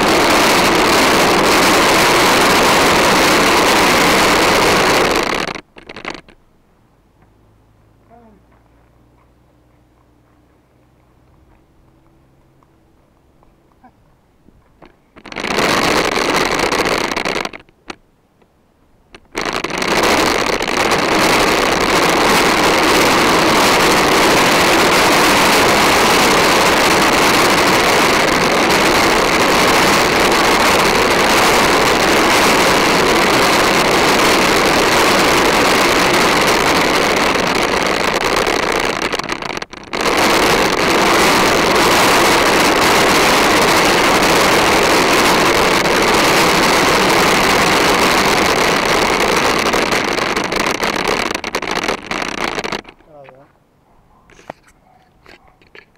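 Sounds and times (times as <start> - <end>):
plastic wheels rolling on court: 0.0 - 6.4, 14.6 - 18.0, 19.1 - 53.3.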